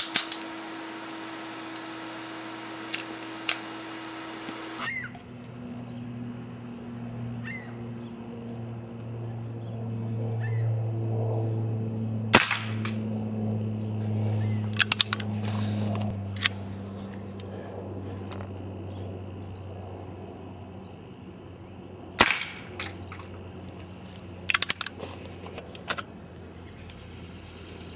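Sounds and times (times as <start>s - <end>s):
steady low hum: 0.0s - 27.9s
birds chirping: 3.3s - 12.2s, 13.0s - 16.0s, 16.6s - 27.9s
air pistol shot crack: 12.3s - 13.0s, 22.2s - 22.8s
pistol clicks: 14.7s - 15.3s, 24.5s - 25.0s.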